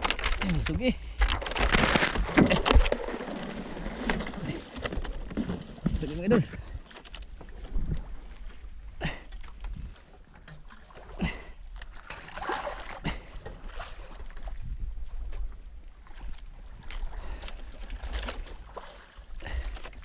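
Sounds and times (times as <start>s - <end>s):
sea water splashing against hull: 9.6s - 20.0s.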